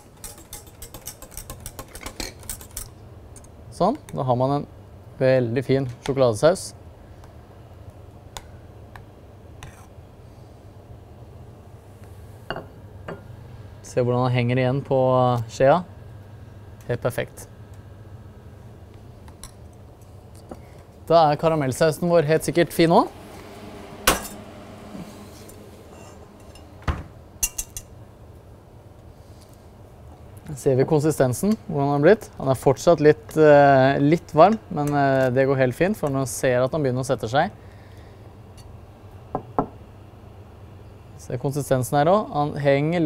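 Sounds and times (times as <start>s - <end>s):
utensils clicking against saucepan: 0.0s - 2.9s
low hum: 21.4s - 29.0s.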